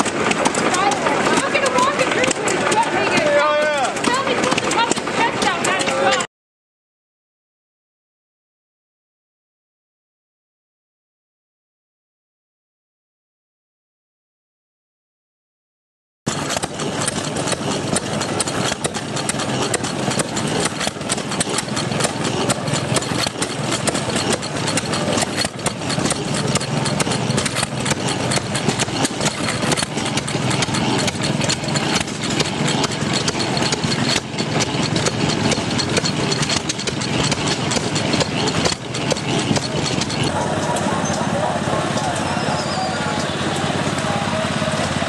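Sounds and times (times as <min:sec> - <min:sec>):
small gas engine clattering: 0:00.0 - 0:06.3, 0:16.3 - 0:45.0.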